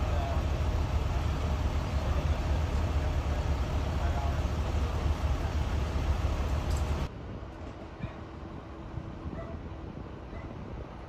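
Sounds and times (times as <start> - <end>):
engine rumbling: 0.0 - 11.0.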